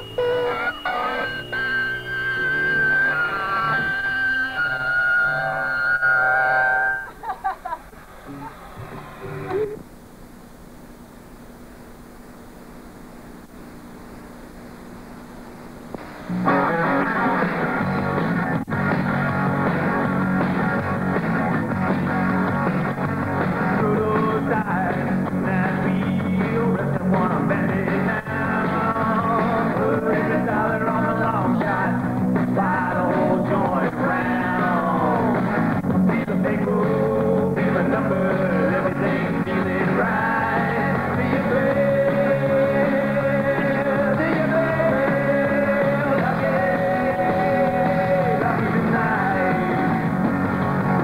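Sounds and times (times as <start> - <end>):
rock band playing: 0.0 - 7.1, 16.3 - 51.0
person singing: 23.6 - 35.4, 36.0 - 50.2.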